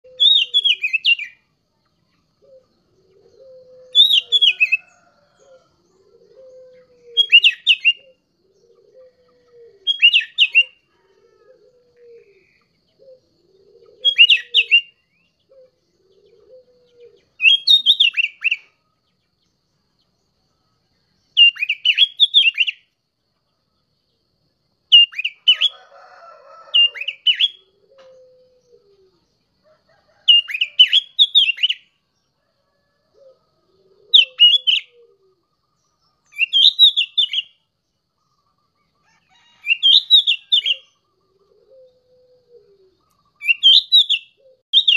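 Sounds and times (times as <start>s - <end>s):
bird singing whistled phrases: 0.0s - 1.4s, 3.8s - 4.8s, 7.2s - 8.2s, 9.8s - 10.8s, 14.0s - 15.0s, 17.4s - 18.6s, 21.4s - 22.8s, 25.0s - 25.7s, 30.3s - 31.9s, 34.2s - 34.9s, 36.3s - 37.6s, 43.4s - 44.9s.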